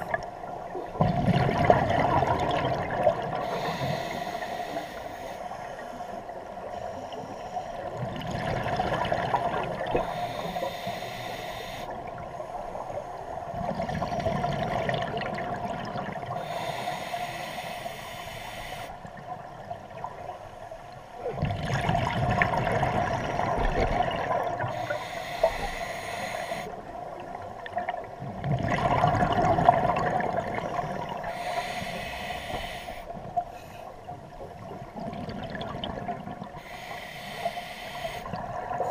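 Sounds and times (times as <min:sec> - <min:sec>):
exhaled bubbles bursting: 0:01.0 - 0:03.4, 0:08.1 - 0:10.0, 0:21.3 - 0:24.7, 0:27.8 - 0:31.2, 0:34.7 - 0:36.5
diver breathing through regulator: 0:03.4 - 0:08.0, 0:10.0 - 0:11.9, 0:16.3 - 0:19.0, 0:24.6 - 0:26.8, 0:30.9 - 0:34.0, 0:36.6 - 0:38.9.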